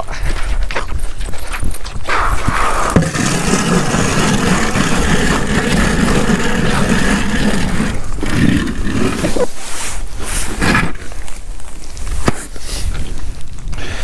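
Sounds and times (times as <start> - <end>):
engine running: 3.0 - 9.4.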